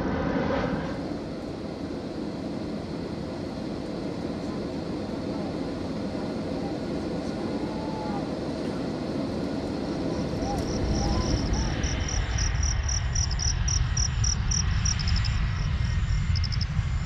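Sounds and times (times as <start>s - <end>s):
jet airliner rumbling overhead: 0.0s - 17.0s
jet engine and air rush in cabin: 0.0s - 17.0s.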